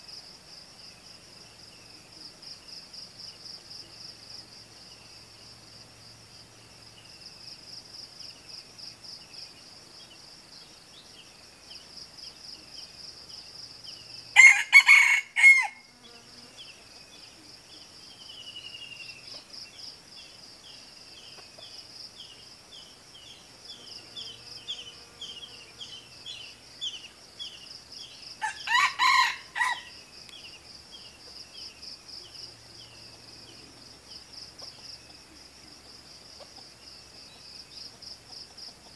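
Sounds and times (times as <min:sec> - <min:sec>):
rooster crowing: 0:14.4 - 0:15.9, 0:28.4 - 0:30.0.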